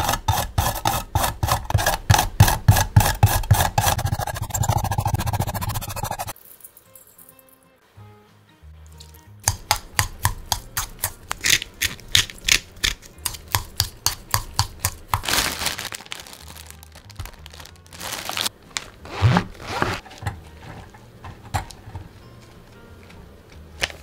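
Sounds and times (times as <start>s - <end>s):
soft background music: 6.3s - 24.0s
utensil clicking against metal bowl: 9.4s - 15.2s.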